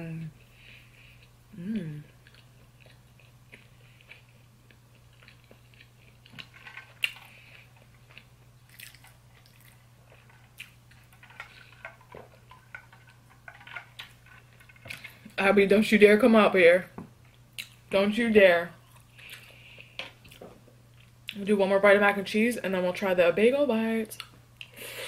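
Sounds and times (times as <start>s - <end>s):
chewing food mouth sounds: 1.1s - 15.2s, 17.3s - 17.8s.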